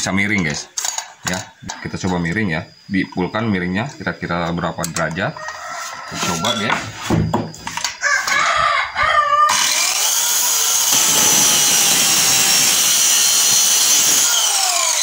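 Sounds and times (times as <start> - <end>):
circular saw cutting wood: 9.5 - 15.0.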